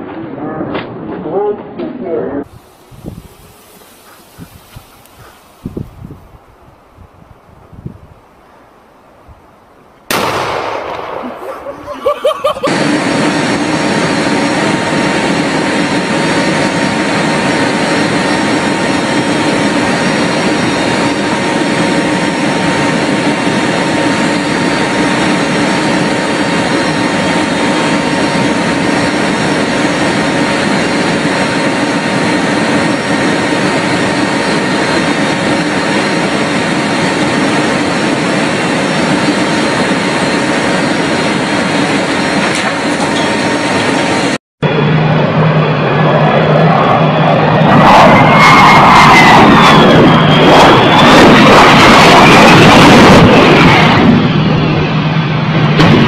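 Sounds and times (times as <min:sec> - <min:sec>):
aircraft engines droning: 0:00.0 - 0:56.0
rushing air: 0:02.5 - 0:08.4, 0:10.1 - 0:56.0
rocket launcher blast: 0:10.1 - 0:11.9, 0:47.6 - 0:54.4, 0:55.6 - 0:56.0.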